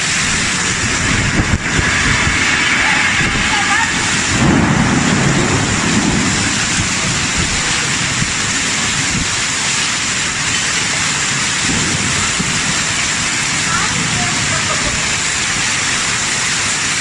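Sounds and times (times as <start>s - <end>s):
heavy rain on paving: 0.0s - 17.0s
low rumble: 0.1s - 9.6s.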